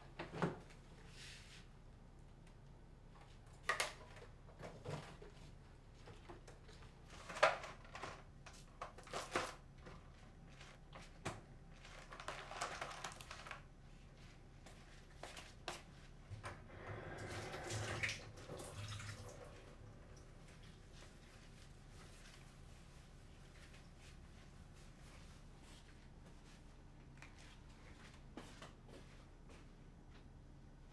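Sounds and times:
water running: 16.6s - 22.8s.

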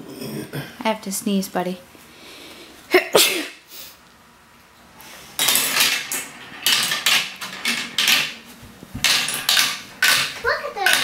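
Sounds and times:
woman sneezing: 3.0s - 3.7s.

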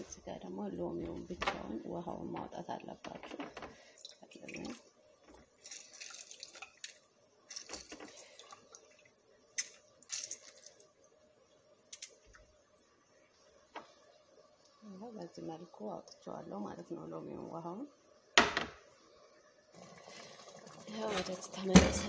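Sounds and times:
juice spurting into jar: 3.8s - 8.9s, 9.5s - 11.0s, 19.8s - 21.3s.

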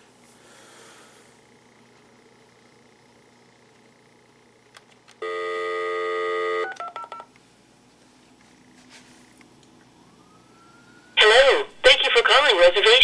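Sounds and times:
telephone dial tone: 5.2s - 7.3s
keypad beeps: 6.6s - 7.3s.

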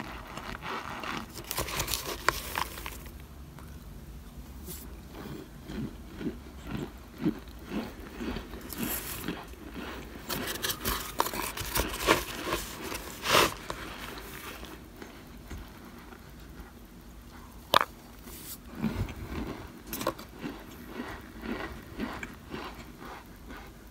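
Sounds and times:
spoon scraping cornstarch in foil pan: 0.0s - 3.1s, 8.7s - 9.3s, 10.2s - 14.7s.

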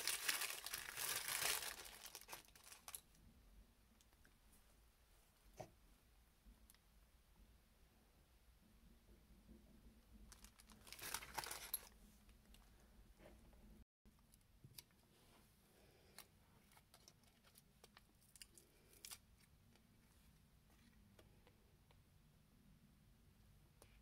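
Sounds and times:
tissue paper crinkling: 0.0s - 3.1s, 10.3s - 12.0s.

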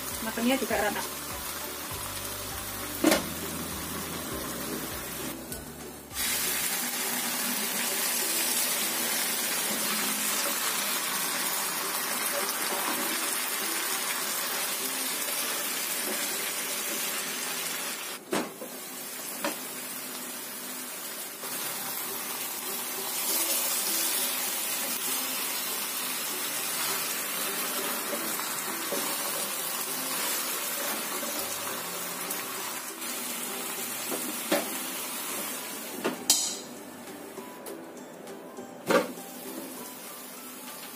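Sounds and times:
chicken sizzling in a pan: 0.0s - 5.4s, 6.1s - 36.6s
pan lid shutting: 3.0s - 3.4s.

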